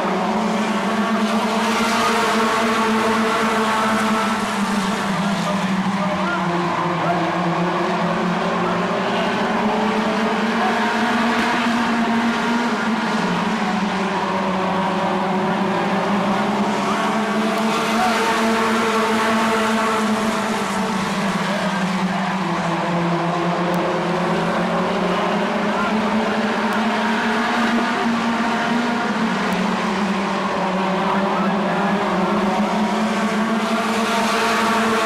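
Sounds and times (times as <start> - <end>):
racing car engines droning: 0.0 - 35.0.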